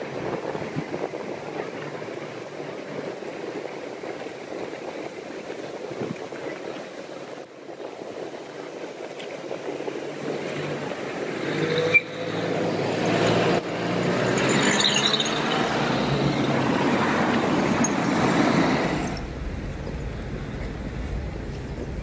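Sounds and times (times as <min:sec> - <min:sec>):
cars passing close by: 0:10.2 - 0:22.0.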